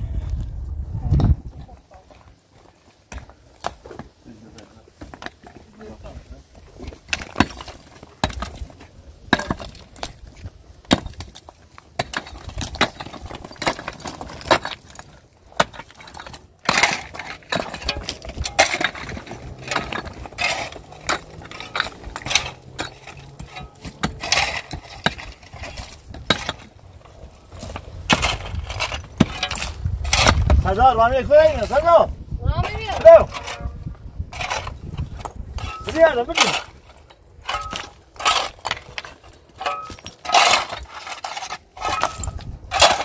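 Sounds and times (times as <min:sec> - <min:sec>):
stones clinking and clattering: 0:06.6 - 0:30.6, 0:32.7 - 0:43.0
pickaxe striking stone rubble: 0:06.8 - 0:30.7, 0:32.9 - 0:43.0.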